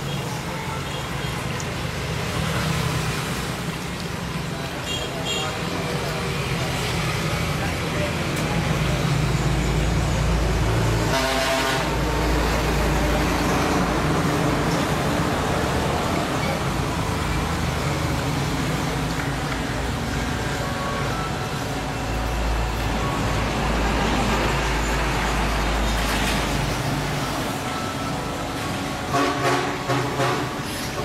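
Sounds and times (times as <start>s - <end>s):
road traffic rumble: 0.0s - 31.0s
vehicle horn tooting: 11.0s - 12.1s, 29.1s - 31.0s.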